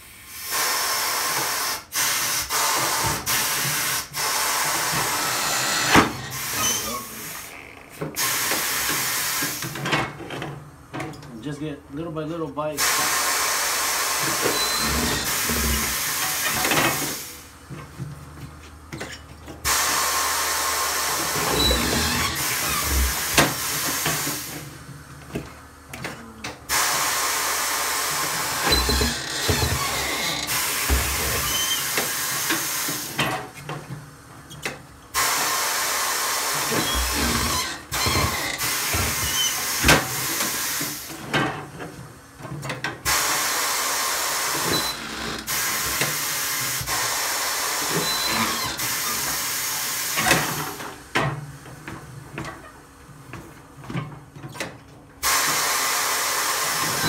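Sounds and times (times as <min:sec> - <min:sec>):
pneumatic bead breaker hissing: 0:00.0 - 0:07.5, 0:08.2 - 0:09.9, 0:12.8 - 0:17.6, 0:19.0 - 0:24.7, 0:26.0 - 0:33.6, 0:34.5 - 0:41.3, 0:43.0 - 0:51.1, 0:55.2 - 0:57.0.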